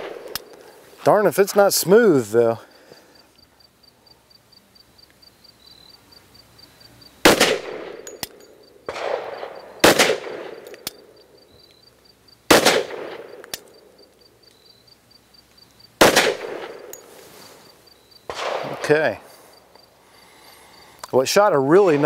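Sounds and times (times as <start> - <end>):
pistol shots: 0.0 - 0.5, 7.2 - 11.0, 12.5 - 13.7, 16.0 - 17.0, 18.3 - 19.2.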